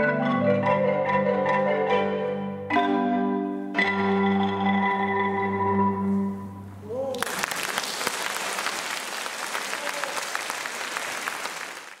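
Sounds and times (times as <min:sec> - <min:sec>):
audience applause: 0:07.1 - 0:12.0.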